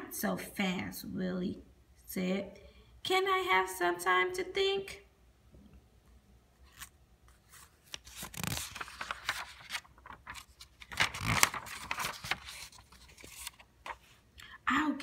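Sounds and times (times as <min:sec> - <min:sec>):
book pages turning and rustling: 0:06.6 - 0:14.2.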